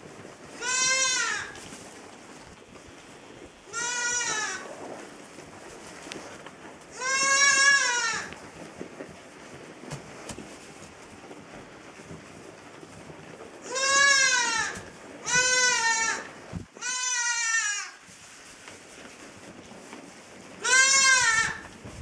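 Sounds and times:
lamb bleating: 0:00.6 - 0:01.6, 0:03.7 - 0:04.6, 0:06.9 - 0:08.3, 0:13.6 - 0:18.0, 0:20.6 - 0:21.6.

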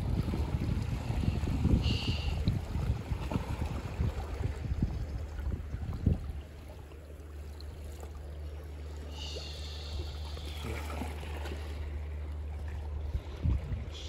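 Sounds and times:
steady low hum: 0:00.0 - 0:14.0
water trickling and hissing: 0:00.9 - 0:02.9, 0:06.0 - 0:14.0.

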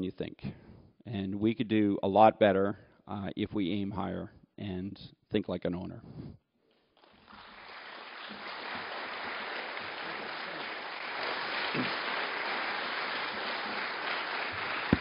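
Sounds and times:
audience applause: 0:07.0 - 0:15.0.

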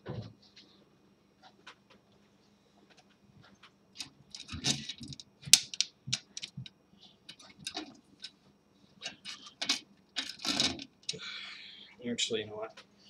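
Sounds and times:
small metal clicks and taps: 0:03.6 - 0:06.7.

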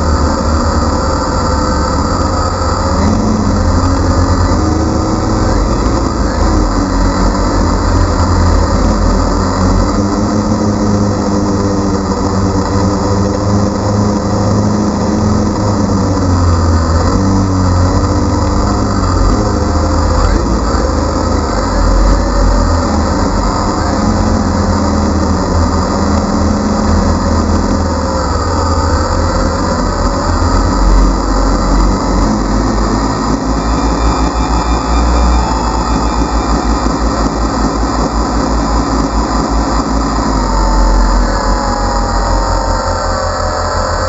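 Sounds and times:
drone propellers whirring: 0:00.0 - 0:44.0.

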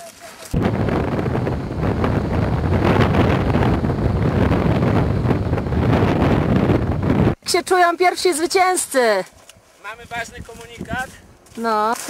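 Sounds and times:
wind on microphone: 0:00.5 - 0:07.4, 0:10.0 - 0:11.4.

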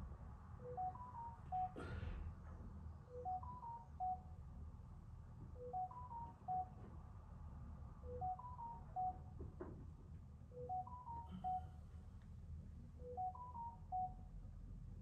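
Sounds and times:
electronic beeping tune: 0:00.6 - 0:01.8, 0:03.1 - 0:04.2, 0:05.6 - 0:06.7, 0:08.1 - 0:09.2, 0:10.6 - 0:11.7, 0:13.0 - 0:14.2.

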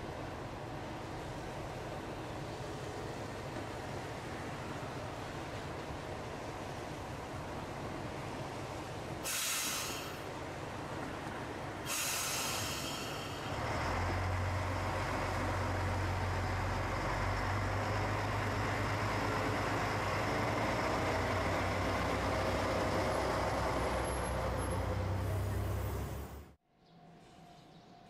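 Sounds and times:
diesel engine drone: 0:00.0 - 0:26.6
air hiss: 0:09.2 - 0:10.3, 0:11.8 - 0:13.5.

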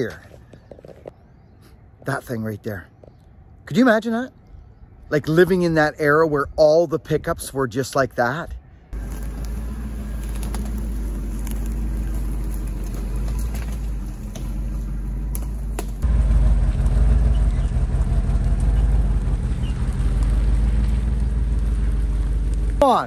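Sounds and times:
pickup truck engine running: 0:09.0 - 0:22.8.

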